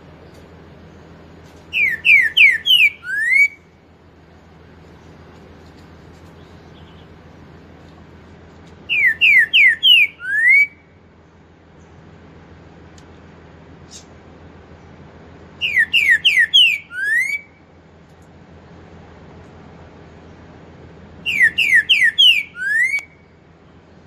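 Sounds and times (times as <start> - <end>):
bird singing whistled phrases: 1.7 - 3.7, 8.9 - 10.8, 15.6 - 17.6, 21.2 - 23.3.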